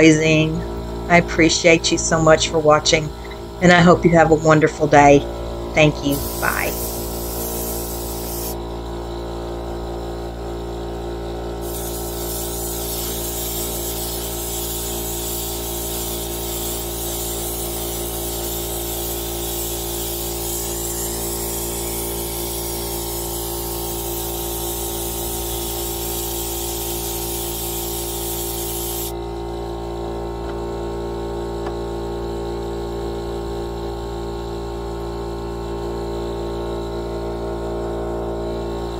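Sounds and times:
droning hum: 0.0 - 25.4
spray gun hissing: 6.1 - 8.6, 11.6 - 29.1.

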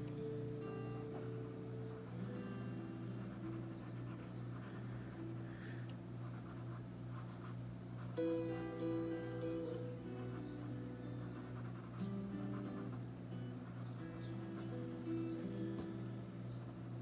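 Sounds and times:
soft background music: 0.0 - 17.0
pencil scratching on paper: 6.2 - 8.2.

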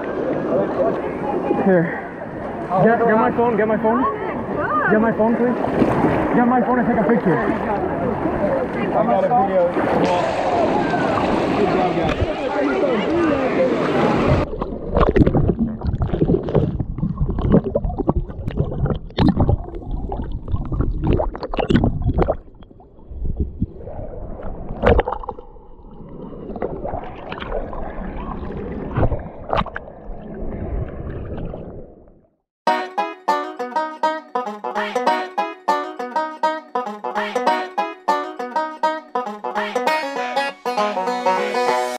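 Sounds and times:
seawater splashing and sloshing: 4.1 - 22.4.

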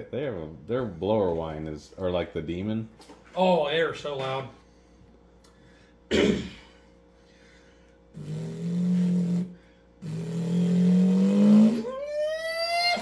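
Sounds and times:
man imitating engine revving: 8.2 - 13.0.

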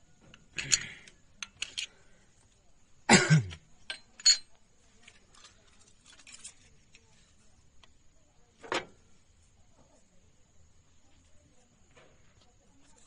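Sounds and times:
metal tools clinking on engine: 0.6 - 1.9, 3.8 - 4.6.

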